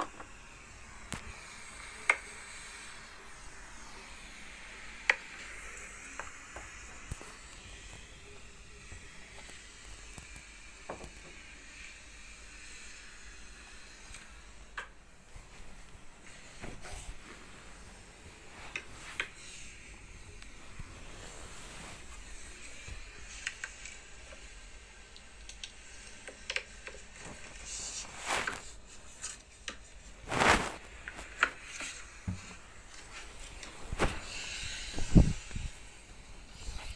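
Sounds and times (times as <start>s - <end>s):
rubbing against fabric: 27.2s - 29.4s, 30.0s - 32.1s.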